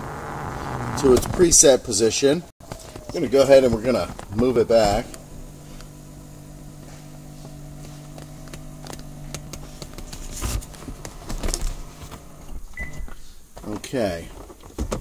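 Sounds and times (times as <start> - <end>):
power seat motor humming: 0.0 - 1.1, 3.0 - 12.6
knocks and rustles of handling: 2.6 - 5.0, 6.8 - 15.0.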